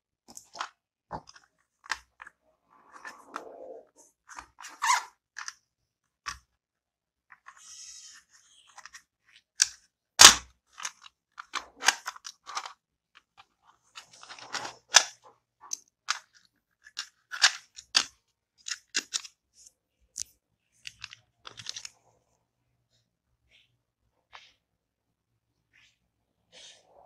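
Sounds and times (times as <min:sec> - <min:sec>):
plastic case and screwdrivers clicking: 0:08.7 - 0:19.4, 0:20.1 - 0:22.0.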